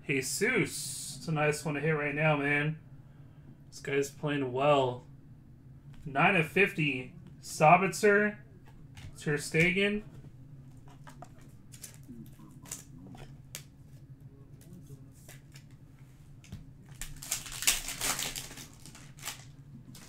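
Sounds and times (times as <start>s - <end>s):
steady low hum: 0.0s - 20.0s
cards clicking and rustling: 10.8s - 14.0s, 16.4s - 20.0s
foil wrapper crinkling rip: 16.9s - 20.0s.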